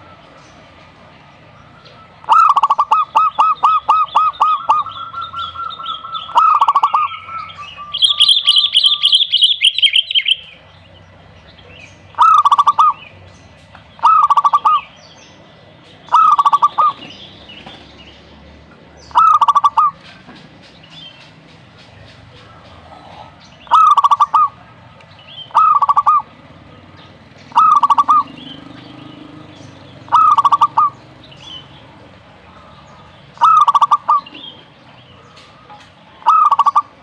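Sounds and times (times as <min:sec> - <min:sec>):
bird chirping and warbling: 0:00.0 - 0:37.0
dove cooing: 0:01.9 - 0:10.4, 0:12.1 - 0:13.0, 0:14.0 - 0:14.9, 0:16.1 - 0:17.8, 0:19.1 - 0:20.3, 0:22.3 - 0:24.8, 0:25.4 - 0:26.8, 0:27.5 - 0:37.0.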